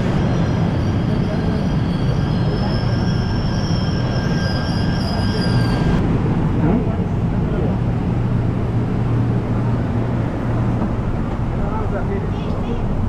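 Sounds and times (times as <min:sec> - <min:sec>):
train brakes squealing: 0:00.0 - 0:06.0
electric train rumble: 0:00.0 - 0:13.0.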